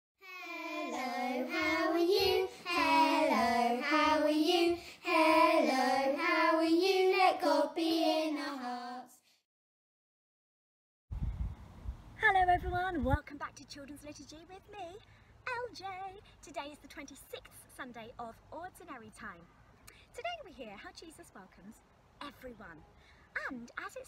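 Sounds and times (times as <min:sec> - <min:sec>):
child singing jingle: 0:00.2 - 0:09.1.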